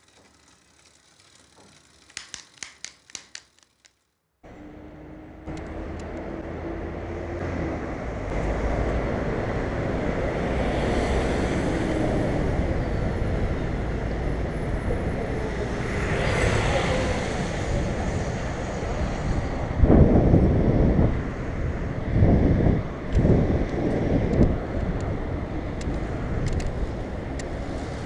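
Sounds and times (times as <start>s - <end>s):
quick run of clicks: 0.0s - 4.2s
city traffic noise: 4.4s - 28.0s
wind rushing over microphone: 5.4s - 28.0s.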